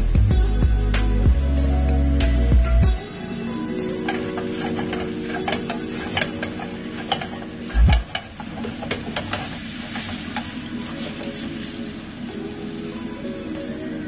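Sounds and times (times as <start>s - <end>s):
water hissing in hot pan: 3.0s - 14.0s
meatballs sizzling in a pan: 3.9s - 13.4s.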